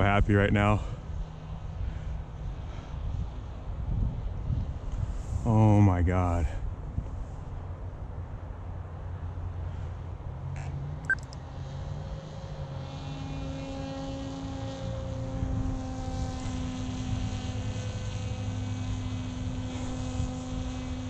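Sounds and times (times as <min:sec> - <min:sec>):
electric motor and propeller drone: 0:00.0 - 0:05.5, 0:10.2 - 0:21.0.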